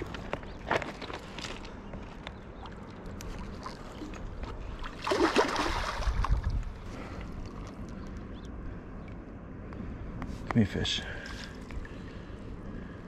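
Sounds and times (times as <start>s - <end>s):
fish splashing and thrashing: 2.5s - 8.0s.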